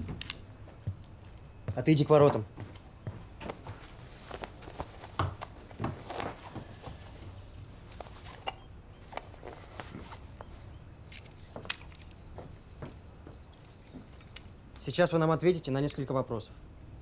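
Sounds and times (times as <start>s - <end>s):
footsteps and shuffling: 0.0s - 14.4s
short knocks and scuffs: 1.7s - 8.4s.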